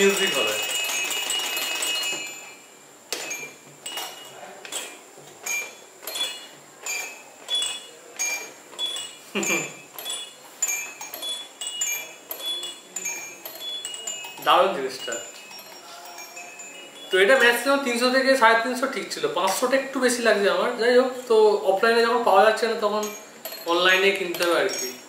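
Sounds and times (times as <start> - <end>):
tumbler doll bell chiming: 0.0 - 2.6, 5.4 - 18.2, 22.8 - 25.0.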